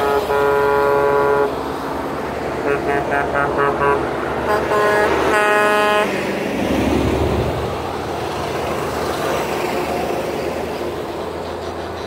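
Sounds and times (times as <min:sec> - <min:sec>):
truck horn toots: 0:00.0 - 0:01.6, 0:02.6 - 0:06.2
diesel truck passing: 0:00.0 - 0:12.0.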